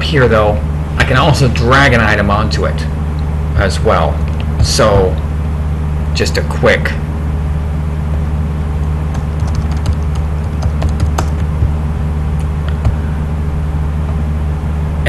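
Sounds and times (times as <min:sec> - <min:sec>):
steady low hum: 0:00.0 - 0:15.0
keyboard and mouse clicks: 0:09.2 - 0:11.7.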